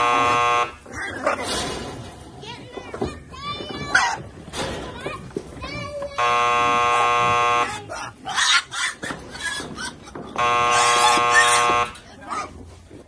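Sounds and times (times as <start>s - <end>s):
loud buzzing tone: 0.0s - 0.8s, 6.2s - 7.8s, 10.4s - 12.0s
scratchy squealing noises: 6.7s - 12.1s.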